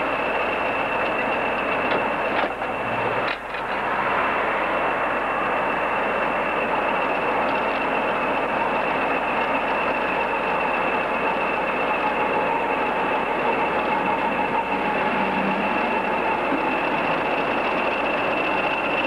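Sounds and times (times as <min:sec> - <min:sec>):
diesel locomotive engine: 0:00.0 - 0:19.0
steady high whine: 0:00.0 - 0:19.0.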